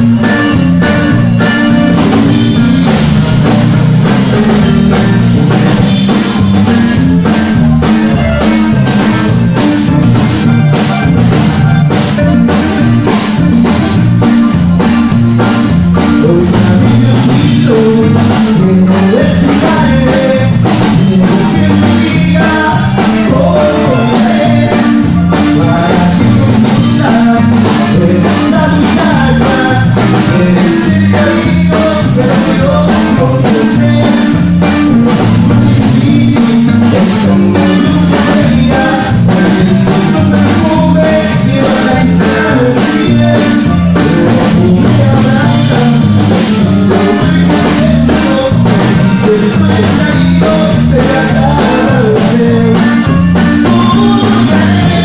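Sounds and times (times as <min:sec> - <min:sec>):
acoustic guitar: 0:00.0 - 0:55.0
drum kit beat: 0:00.0 - 0:55.0
man singing: 0:15.6 - 0:55.0.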